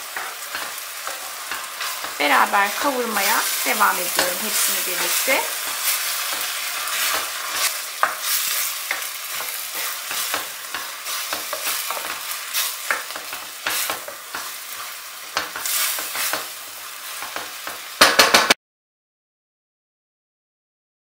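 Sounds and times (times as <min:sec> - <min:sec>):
wooden spoon scraping a pot: 0:00.0 - 0:16.5
vegetables sizzling in oil: 0:00.0 - 0:18.6.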